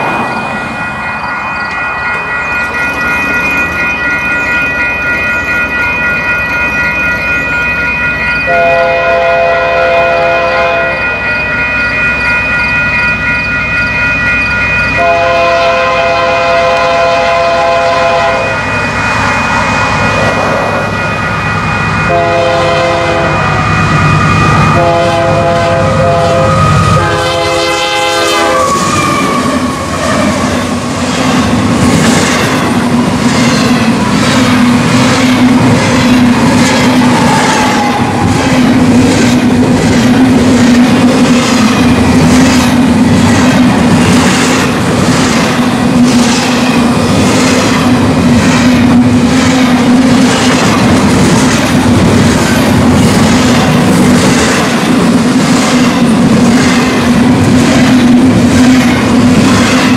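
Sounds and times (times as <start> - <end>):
train horn blasts: 8.5 - 11.0, 15.0 - 18.6, 22.1 - 23.7, 24.7 - 29.8
wheels clattering on rail: 28.6 - 59.9.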